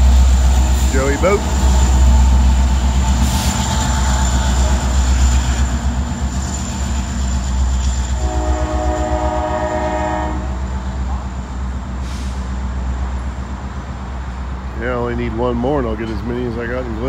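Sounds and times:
diesel freight train rumble: 0.0s - 17.0s
locomotive air horn blast: 8.2s - 10.6s.

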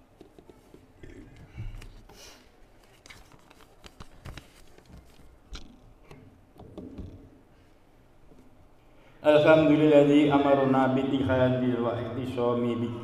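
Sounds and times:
papers handled: 1.7s - 5.4s.

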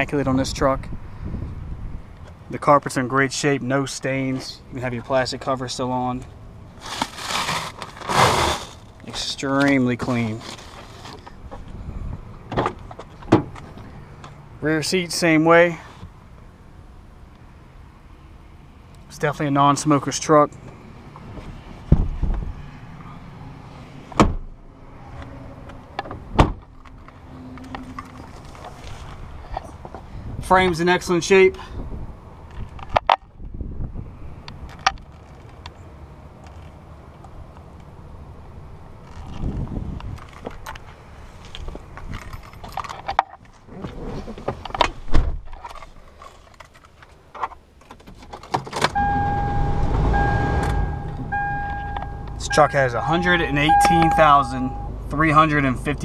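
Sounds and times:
truck door thumps: 24.2s - 24.4s.

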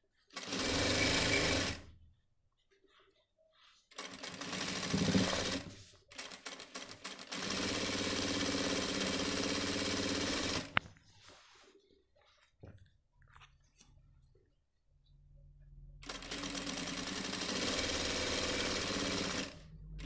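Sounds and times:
sewing machine stitching: 0.3s - 1.9s, 3.9s - 10.8s, 16.0s - 19.6s.

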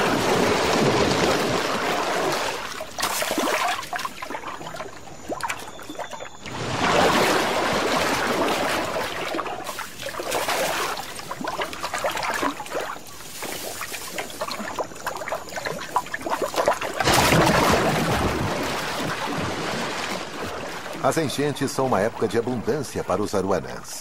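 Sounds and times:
loud fish splash: 0.0s - 21.2s
water dripping and trickling: 8.0s - 22.8s.

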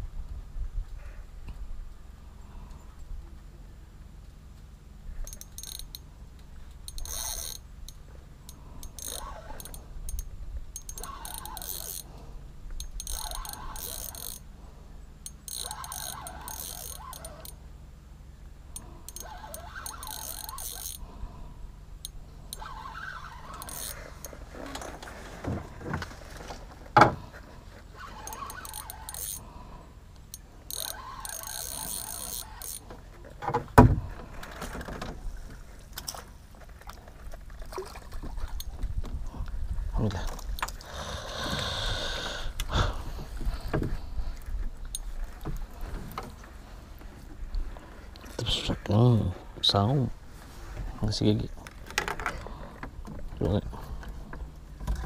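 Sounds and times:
fishing reel gears whirring: 5.2s - 6.1s, 6.8s - 12.2s, 12.8s - 14.6s, 15.2s - 17.6s, 18.7s - 21.4s, 22.0s - 25.0s, 27.9s - 33.0s.

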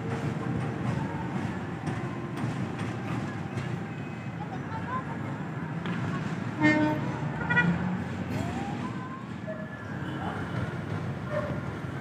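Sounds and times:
diesel locomotive horn blasts: 6.5s - 8.0s.

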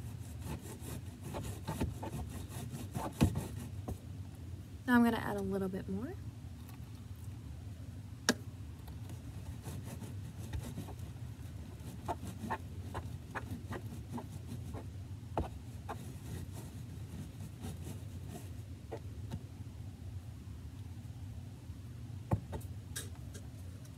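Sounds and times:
low steady hum: 0.0s - 23.9s
stick stirring slime: 11.7s - 18.3s.

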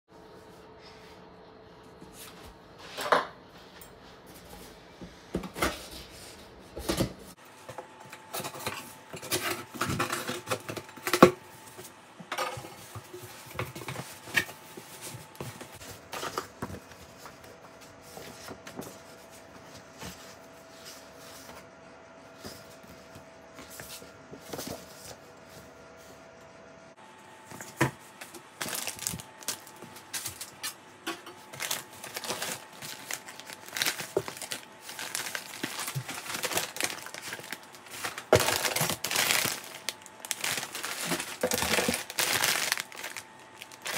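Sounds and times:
paper rustling: 27.5s - 30.8s, 31.4s - 43.9s.

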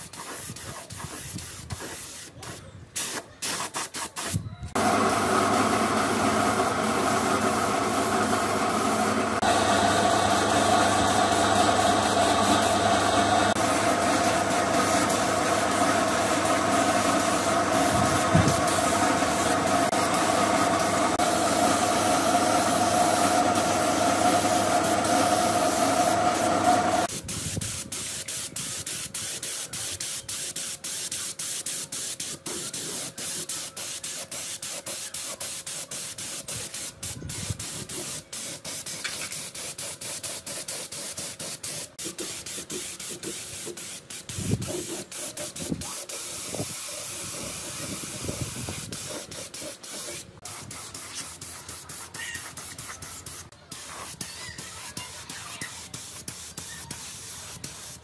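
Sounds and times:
loud machine hum: 4.8s - 27.1s
spray gun hissing: 4.8s - 54.1s, 55.8s - 58.0s.

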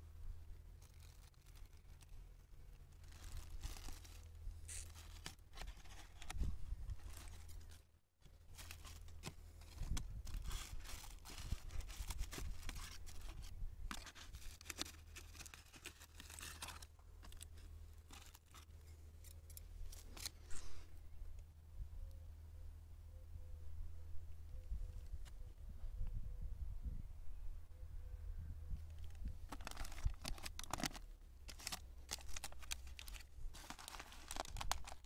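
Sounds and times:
plastic crinkling and tearing: 0.8s - 18.7s, 29.0s - 35.0s.

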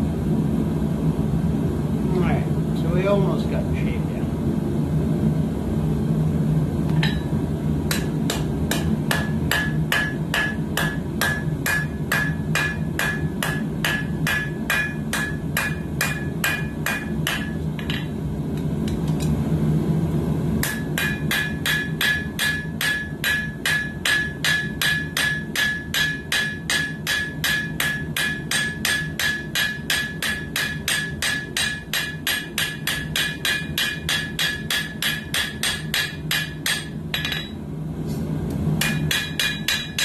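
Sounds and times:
steady low hum: 0.0s - 40.0s
hammer blows ringing on anvil: 7.0s - 7.3s, 7.9s - 18.1s, 20.6s - 37.6s, 38.8s - 40.0s.

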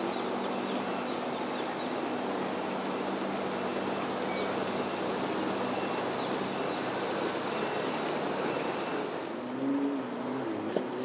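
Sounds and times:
boat engine humming: 0.0s - 11.0s
wind: 0.0s - 11.0s
surf rushing: 1.9s - 9.6s.

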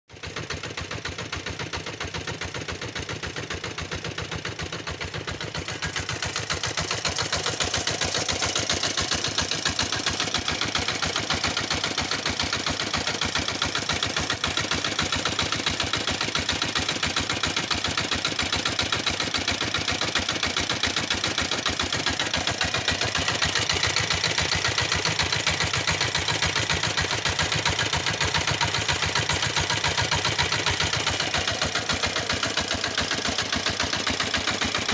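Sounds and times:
small engine running: 0.1s - 34.9s.

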